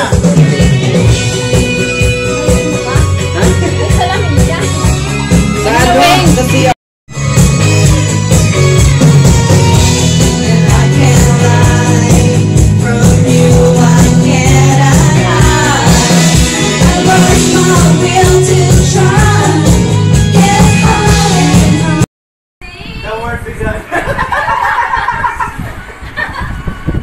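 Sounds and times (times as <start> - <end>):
backing track with bass beat: 0.0 - 22.1
woman singing karaoke: 2.2 - 4.9, 5.6 - 6.7, 10.2 - 22.0.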